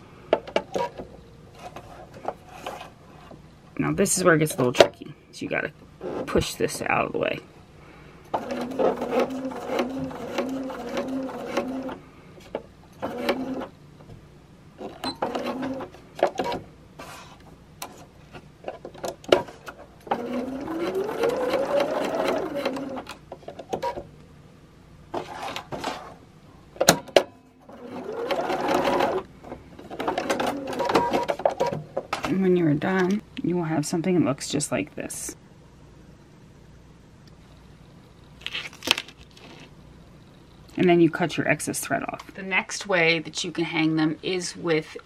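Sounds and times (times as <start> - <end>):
sewing machine motor whining: 8.3 - 12.0, 20.0 - 23.2.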